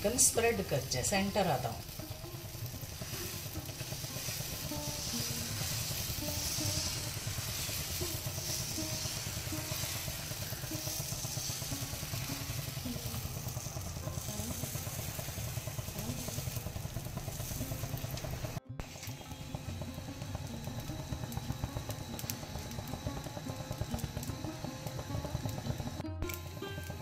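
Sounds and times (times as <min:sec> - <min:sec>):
music with low beat and melody: 0:15.8 - 0:27.0.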